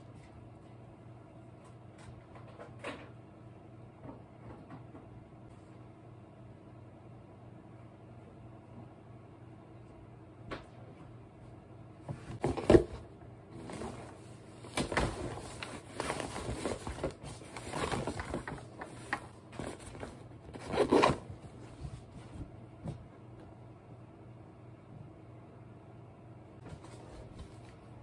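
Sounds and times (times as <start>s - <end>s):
zipper being pulled: 20.6s - 21.2s.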